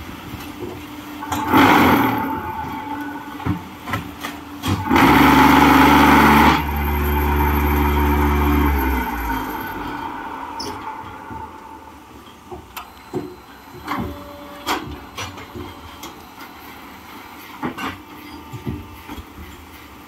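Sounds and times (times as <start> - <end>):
vibrators humming: 0.0 - 17.3
machine clanks: 0.6 - 16.2
machine noisy rush: 1.2 - 12.8.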